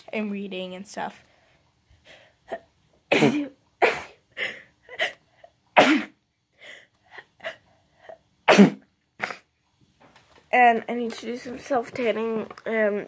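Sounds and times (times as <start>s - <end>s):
woman sneezing: 3.1s - 5.2s, 5.8s - 6.2s, 8.4s - 9.5s.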